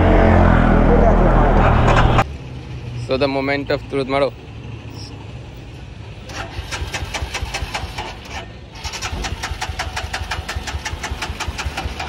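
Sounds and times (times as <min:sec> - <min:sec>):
motorcycle engine cranking: 0:06.3 - 0:12.0.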